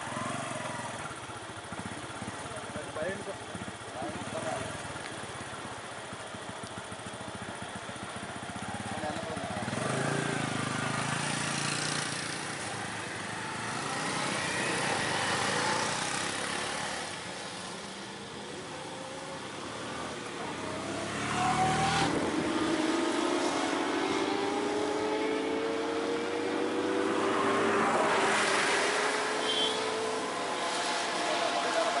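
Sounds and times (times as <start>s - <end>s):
motorcycles passing: 0.0s - 32.0s
vehicle engines running: 0.0s - 32.0s.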